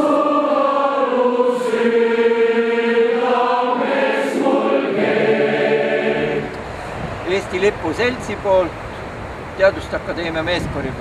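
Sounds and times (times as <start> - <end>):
choir singing long notes: 0.0 - 6.9.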